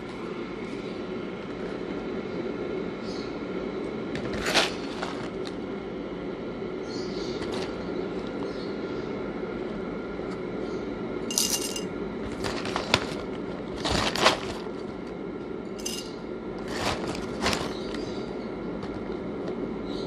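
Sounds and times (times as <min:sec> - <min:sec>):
coffee beans rattling in glass jar: 0:11.3 - 0:11.9, 0:15.8 - 0:17.0.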